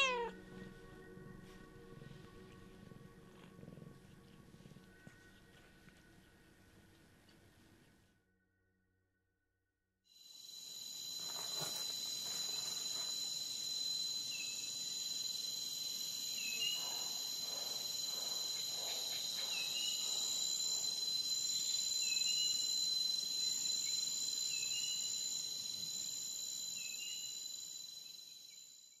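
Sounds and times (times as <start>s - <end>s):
high-pitched insect chorus: 10.2s - 29.0s
short insect chirp: 10.2s - 29.0s.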